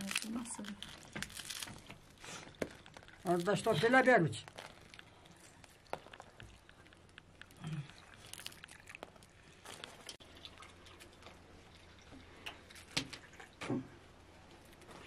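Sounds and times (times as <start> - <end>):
milk trickling into mug: 4.5 - 13.6.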